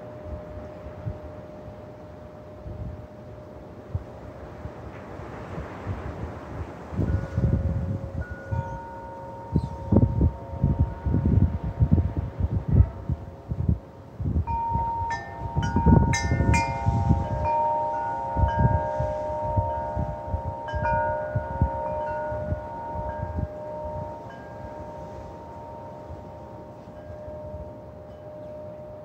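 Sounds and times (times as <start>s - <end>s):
wind buffeting microphone: 0.0s - 29.0s
wind chimes ringing: 7.0s - 12.4s, 13.2s - 29.0s.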